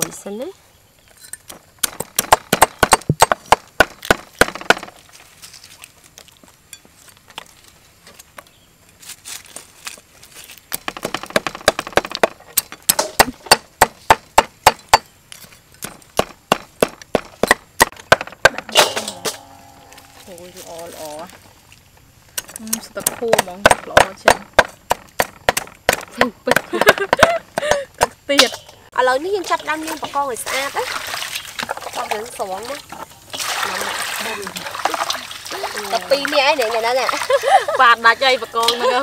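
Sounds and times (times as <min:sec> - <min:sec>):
cleaver chopping on wooden block: 0:01.8 - 0:04.9, 0:10.8 - 0:15.1, 0:15.8 - 0:19.3, 0:23.0 - 0:28.2.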